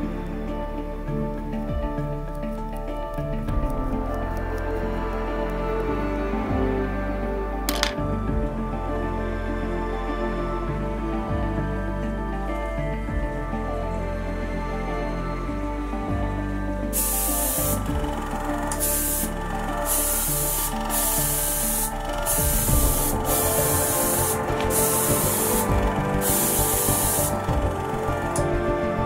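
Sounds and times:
background music: 0.0s - 29.0s
airbrush spraying hiss: 17.0s - 18.0s, 18.7s - 28.4s.

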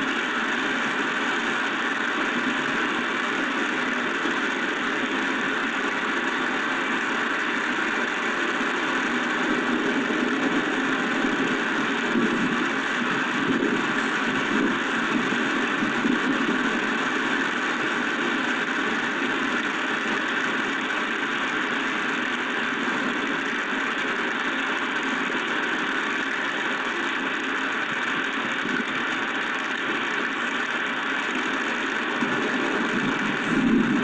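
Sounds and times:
storm wind: 0.0s - 24.2s, 31.6s - 34.0s
driving rain: 0.0s - 34.0s.

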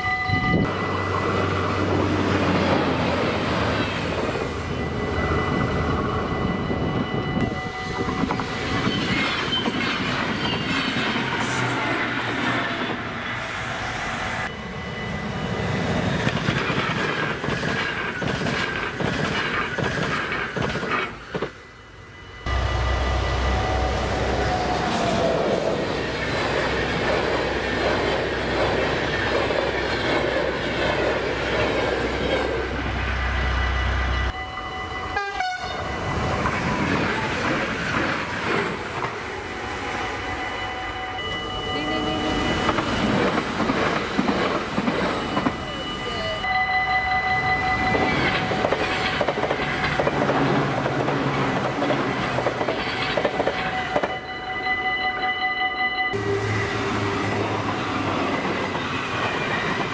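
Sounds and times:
level crossing warning bells: 0.0s - 11.4s, 13.0s - 17.4s, 21.2s - 59.9s
train wheels clattering on rails: 5.6s - 13.0s, 15.8s - 21.6s, 24.5s - 32.6s, 35.4s - 39.3s, 42.4s - 45.7s, 47.8s - 54.2s.

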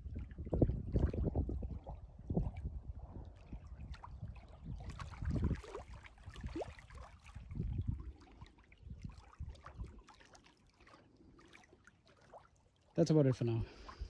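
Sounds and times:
wind gusting on microphone: 0.0s - 6.7s, 7.3s - 8.2s, 8.8s - 10.0s
waves lapping against rocks: 0.0s - 14.0s.

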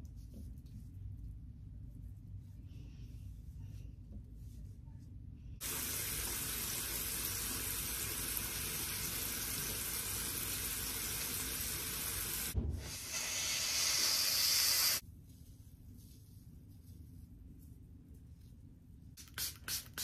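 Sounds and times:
tap water running into sink: 5.6s - 13.0s
thump: 12.6s - 12.9s.

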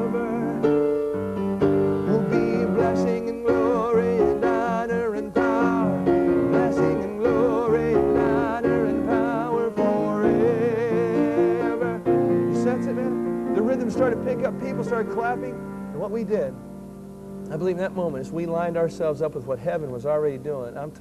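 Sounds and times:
man singing with vibrato: 0.0s - 1.1s, 1.8s - 16.4s
piano chords: 0.0s - 21.0s.

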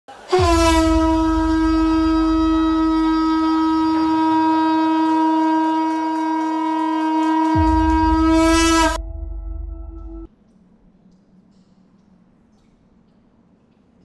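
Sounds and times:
horn-like wind instrument note: 0.3s - 10.3s
deep low rumble: 7.6s - 10.3s.

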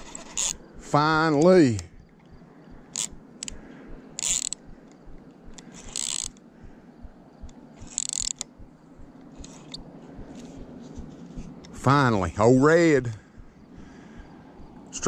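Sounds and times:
fishing reel ratcheting clicks: 0.0s - 0.6s, 2.9s - 3.6s, 4.2s - 4.6s, 5.5s - 6.4s, 7.4s - 8.5s, 9.4s - 9.8s.

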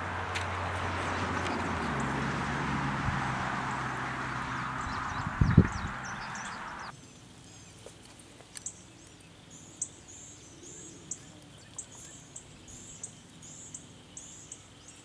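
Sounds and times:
faint outdoor background: 0.0s - 15.0s
bird chirping: 4.1s - 7.9s, 8.5s - 15.0s.

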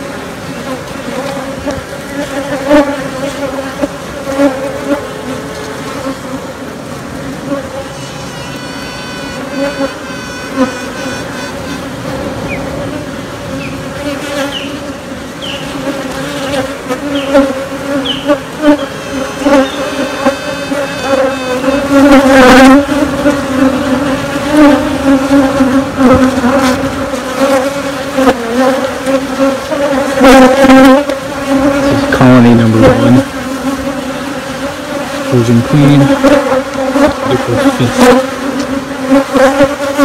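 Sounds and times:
queen bee piping: 0.0s - 6.4s, 7.5s - 40.0s
honey bees buzzing: 0.0s - 40.0s.

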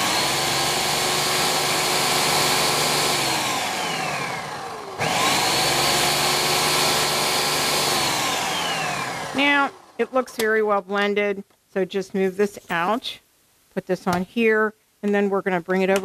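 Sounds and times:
blender motor whirring: 0.0s - 10.0s.

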